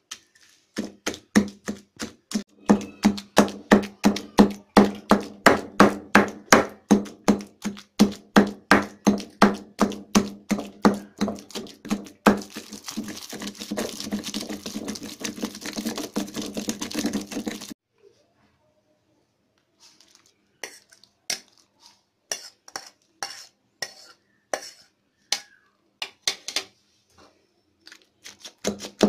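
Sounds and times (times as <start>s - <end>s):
pestle pounding in stone mortar: 0.8s - 17.8s, 28.6s - 29.0s.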